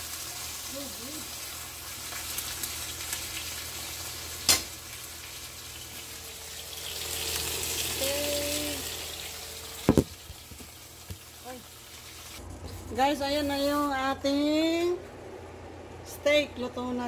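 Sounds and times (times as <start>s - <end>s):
steak sizzling in a skillet: 0.0s - 12.4s.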